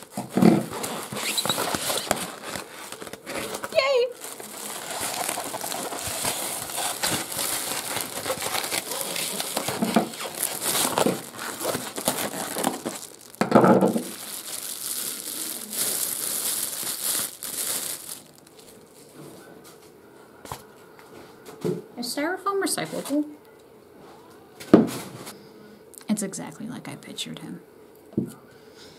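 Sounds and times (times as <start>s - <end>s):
plastic bag crinkling: 0.0s - 19.2s.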